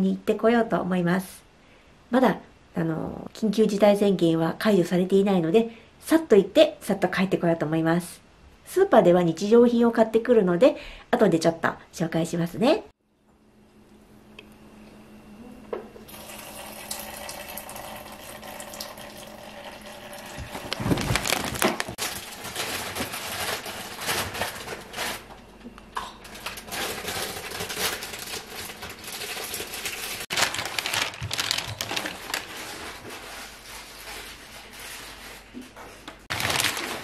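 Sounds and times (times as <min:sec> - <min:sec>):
plastic bags rustling: 0:20.3 - 0:25.4, 0:26.2 - 0:37.0
items knocking down: 0:20.4 - 0:22.2.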